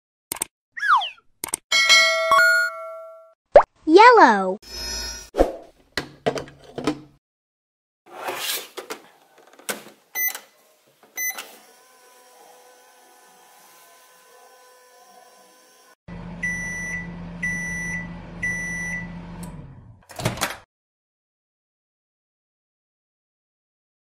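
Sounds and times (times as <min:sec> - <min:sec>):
timer beeps: 0:16.4 - 0:19.1.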